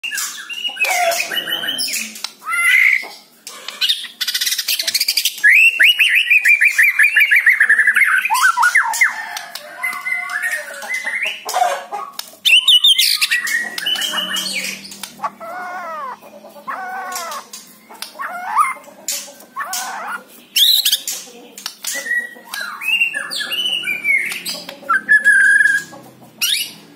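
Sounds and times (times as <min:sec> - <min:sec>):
bird whistling and chattering: 0:12.5 - 0:21.0, 0:21.9 - 0:26.8.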